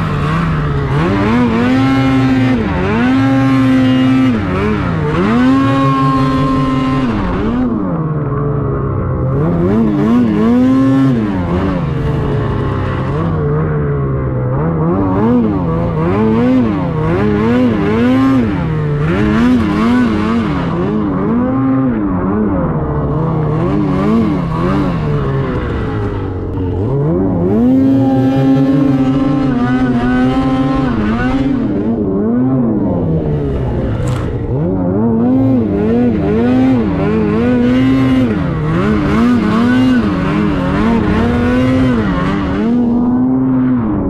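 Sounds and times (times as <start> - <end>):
snowmobile engine revving: 0.0 - 44.0
sharp click: 34.0 - 34.3.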